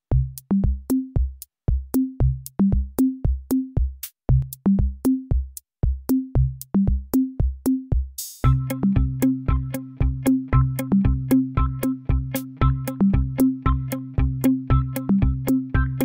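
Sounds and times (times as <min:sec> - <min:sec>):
electronic music with drum-machine beat: 0:00.1 - 0:16.0.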